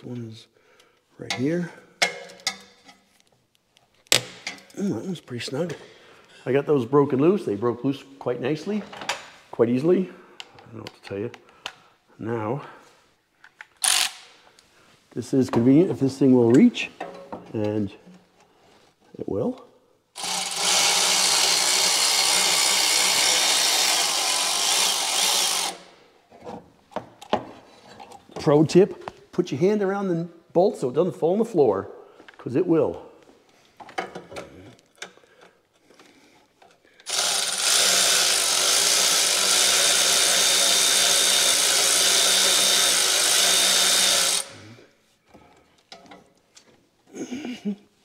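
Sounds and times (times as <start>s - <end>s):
cordless electric ratchet running: 13.8s - 14.2s, 20.2s - 25.9s, 37.0s - 44.6s.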